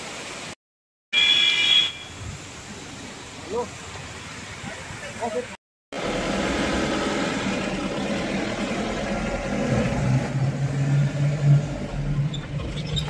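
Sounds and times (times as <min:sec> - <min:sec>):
car engine drone: 0:06.0 - 0:13.0.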